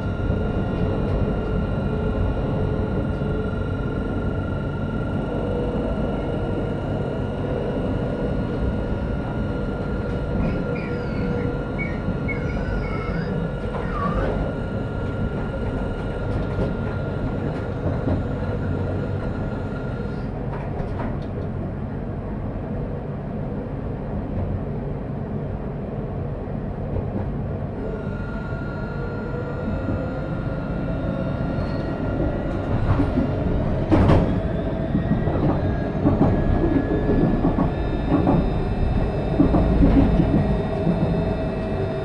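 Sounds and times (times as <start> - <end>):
tram drive whine: 0.0 - 42.0
tram wheels rumbling on rail: 0.0 - 42.0
wheel squeals: 10.4 - 14.6.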